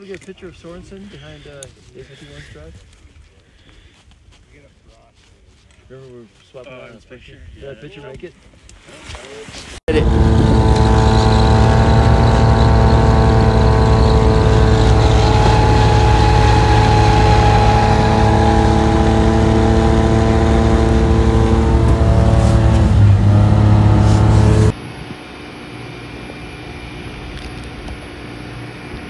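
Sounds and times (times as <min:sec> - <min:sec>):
tracked vehicle engine under load: 0:09.9 - 0:24.8.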